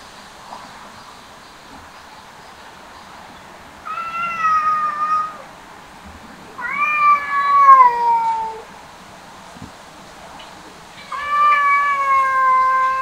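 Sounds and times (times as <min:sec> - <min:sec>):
cat meowing: 0:03.9 - 0:05.5, 0:06.6 - 0:08.7, 0:11.0 - 0:13.0.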